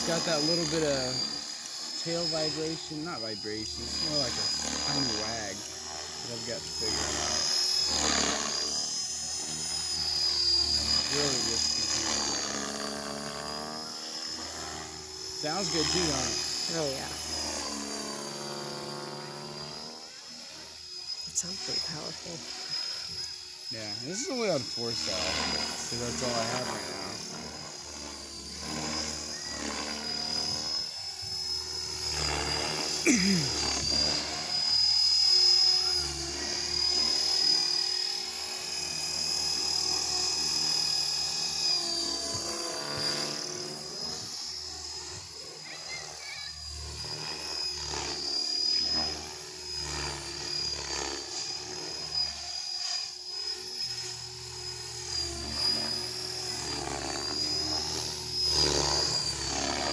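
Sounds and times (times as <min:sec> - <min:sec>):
rc helicopter motor whine: 0:00.0 - 0:59.9
rotor blades whooshing: 0:21.0 - 0:35.6.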